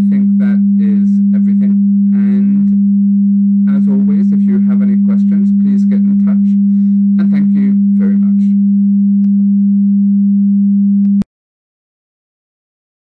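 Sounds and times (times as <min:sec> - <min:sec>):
low steady sine tone: 0:00.0 - 0:11.3.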